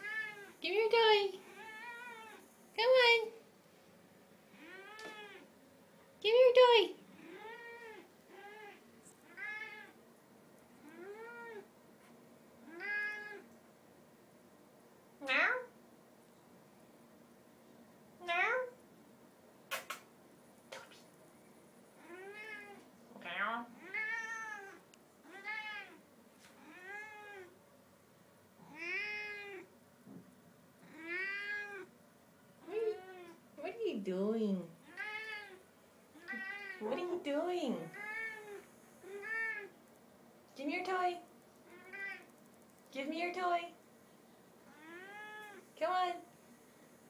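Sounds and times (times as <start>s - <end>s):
cat meowing: 0.0s - 0.5s, 1.5s - 2.4s, 4.6s - 5.5s, 7.2s - 10.0s, 10.8s - 11.7s, 12.7s - 13.5s, 22.0s - 22.8s, 23.8s - 26.0s, 26.6s - 27.5s, 28.6s - 29.7s, 30.8s - 31.9s, 34.8s - 35.6s, 36.2s - 36.9s, 37.9s - 39.7s, 41.7s - 42.3s, 44.7s - 45.6s.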